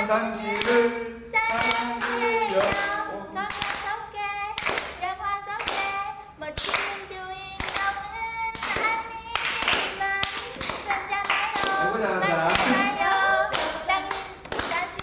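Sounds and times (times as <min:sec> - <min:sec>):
people singing pop song: 0:00.0 - 0:04.3, 0:07.8 - 0:15.0
people clapping along: 0:00.0 - 0:15.0.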